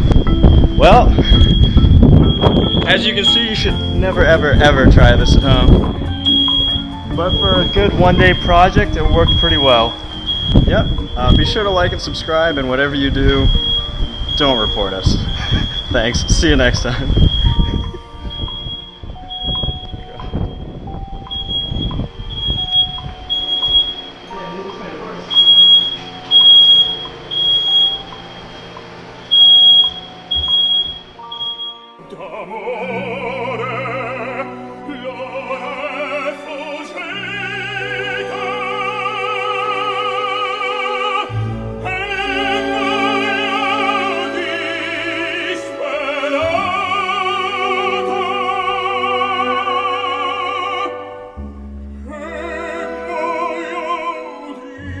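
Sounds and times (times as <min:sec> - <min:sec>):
smoke alarm beeping: 0:00.0 - 0:32.0
operatic singing with orchestra: 0:32.0 - 0:51.2, 0:52.0 - 0:55.0.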